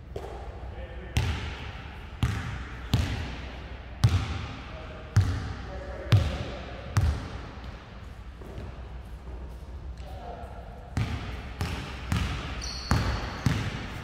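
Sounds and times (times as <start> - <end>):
basketball bouncing on gym floor: 1.2 - 1.6, 2.2 - 3.4, 4.0 - 4.6, 5.2 - 7.5, 10.9 - 14.0.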